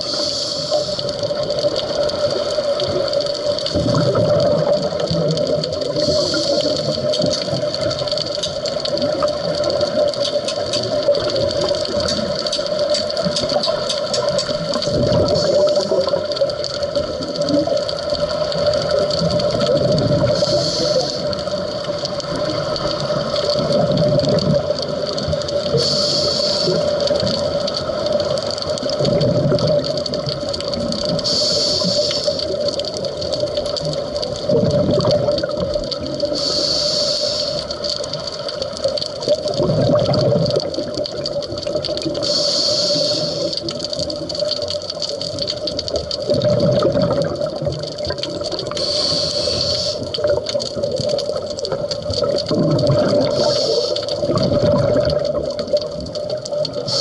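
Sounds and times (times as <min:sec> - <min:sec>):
regulator inhale hiss: 0:00.0 - 0:01.3, 0:06.0 - 0:07.1, 0:15.2 - 0:16.2, 0:20.3 - 0:21.6, 0:25.7 - 0:27.2, 0:31.2 - 0:32.6, 0:36.2 - 0:37.9, 0:42.2 - 0:43.8, 0:48.6 - 0:50.2, 0:53.2 - 0:54.3
exhaled bubbles rushing: 0:00.0 - 0:36.6, 0:37.7 - 0:42.4, 0:43.1 - 0:57.0.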